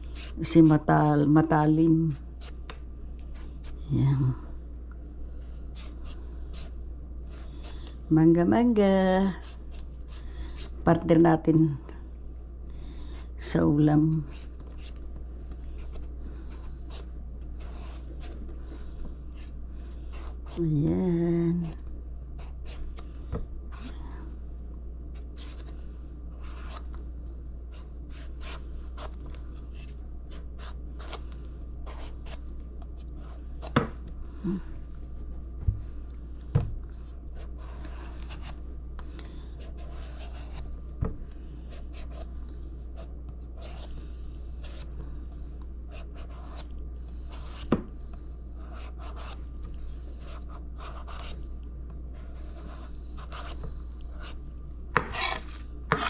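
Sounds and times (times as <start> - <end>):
knife scraping and cutting mango: 55.0 - 56.0.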